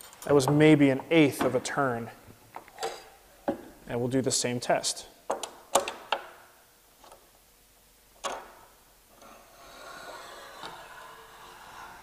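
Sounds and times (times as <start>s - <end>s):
square scraping along slot: 9.2s - 12.0s.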